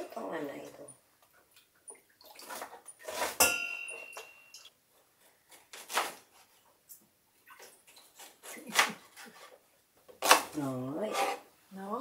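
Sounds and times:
metal kitchenware scraping: 0:02.4 - 0:04.7, 0:11.0 - 0:11.5
metal kitchenware knock: 0:03.4 - 0:04.6.

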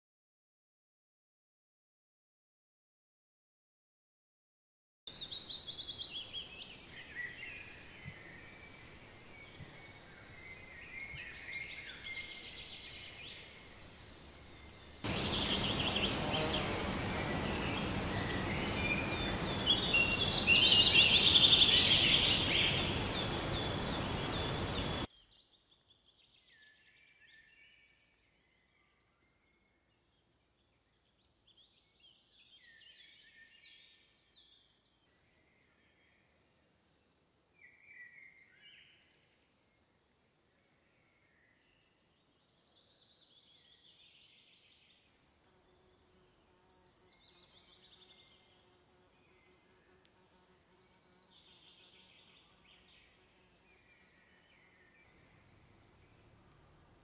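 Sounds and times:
background hiss: 0:05.1 - 0:25.1, 0:34.4 - 0:57.0
songbirds singing: 0:05.1 - 0:57.0.

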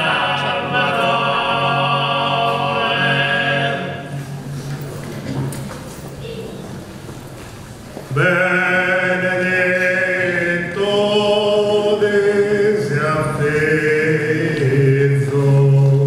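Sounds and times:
male voices singing in harmony: 0:00.0 - 0:04.3, 0:08.1 - 0:16.0.

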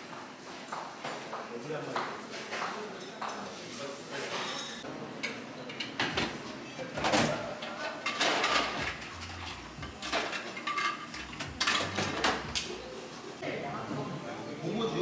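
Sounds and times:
dishes knocking and clinking: 0:04.4 - 0:06.4, 0:07.0 - 0:12.6.

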